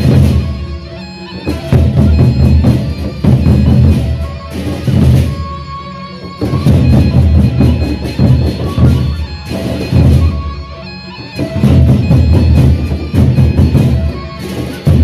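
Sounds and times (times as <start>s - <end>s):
barrel drums beaten with sticks: 1.7s - 5.4s.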